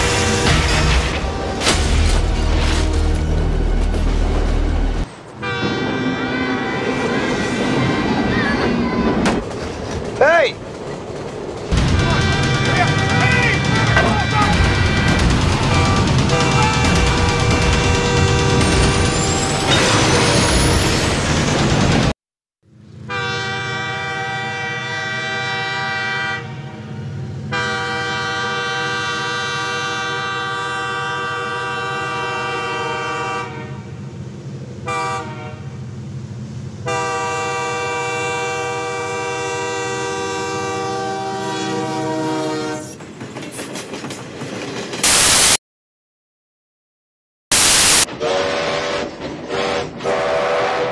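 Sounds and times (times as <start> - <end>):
locomotive air horn blasts: 0.0 - 3.8, 5.4 - 8.2, 11.9 - 13.9, 14.5 - 18.7, 23.1 - 34.0, 34.8 - 35.8, 36.8 - 43.0, 47.5 - 50.9
low rumble of train: 0.0 - 22.1, 22.7 - 45.0, 48.1 - 50.9
loud film soundtrack: 0.0 - 22.2.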